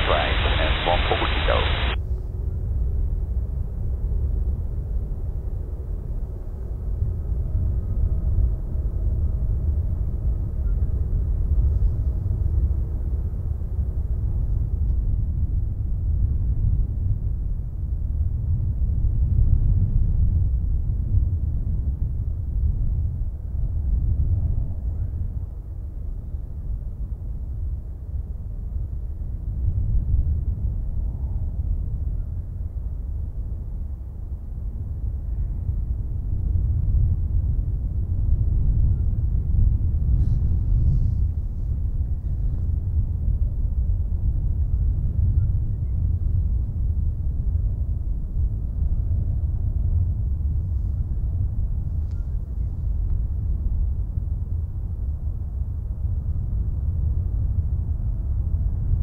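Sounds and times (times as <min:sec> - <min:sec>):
low uneven rumble: 0:00.0 - 0:02.0.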